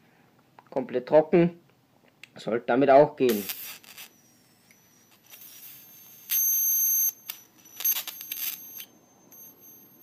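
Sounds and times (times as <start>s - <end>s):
electric arc crackling: 3.2s - 4.2s, 5.0s - 8.6s
high-pitched electrical whine: 3.3s - 10.0s.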